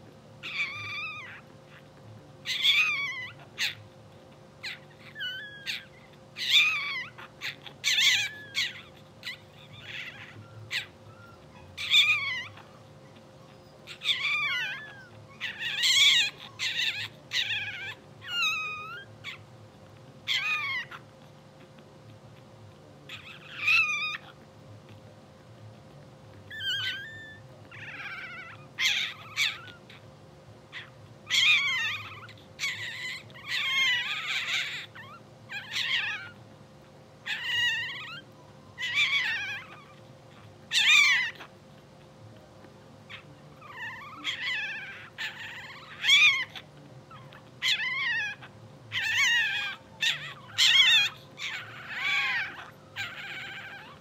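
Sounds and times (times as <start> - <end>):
puppies squeaking and whimpering: 0.0 - 54.0.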